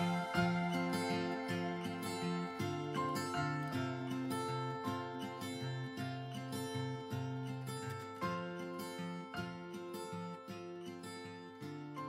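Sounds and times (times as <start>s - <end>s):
plucked-string melody: 0.0s - 6.0s.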